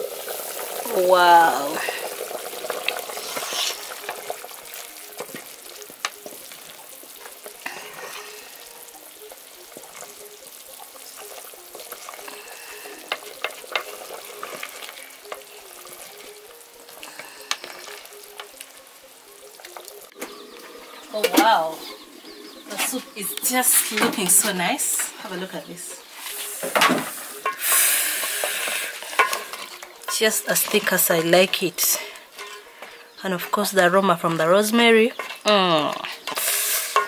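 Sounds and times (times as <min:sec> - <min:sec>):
stew bubbling: 0:00.0 - 0:37.0
wooden spoon scraping pot: 0:27.4 - 0:33.7, 0:35.1 - 0:35.4.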